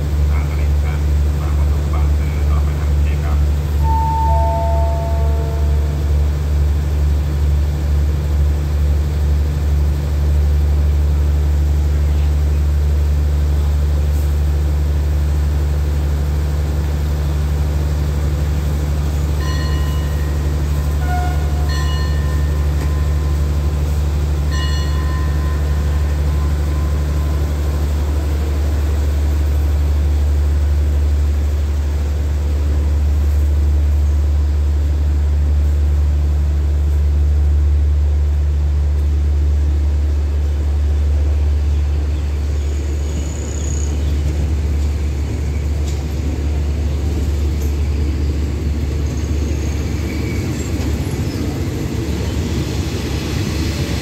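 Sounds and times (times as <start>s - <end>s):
diesel train idling rumble: 0.0s - 54.0s
short high tones: 3.8s - 6.0s.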